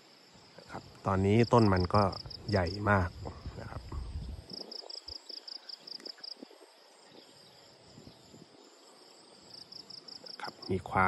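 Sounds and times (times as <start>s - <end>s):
cricket chirping: 0.0s - 11.0s
faint crackles: 0.6s - 7.4s.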